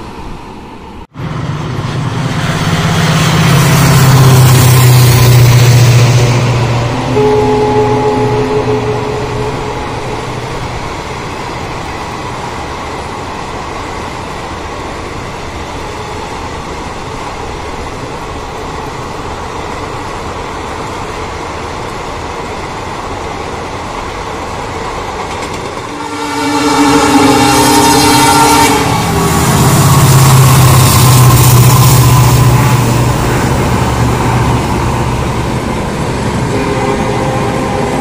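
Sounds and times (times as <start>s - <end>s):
train wheels rumbling on rail: 0.0s - 38.0s
train horn: 6.4s - 10.9s, 25.9s - 32.6s, 36.4s - 38.0s.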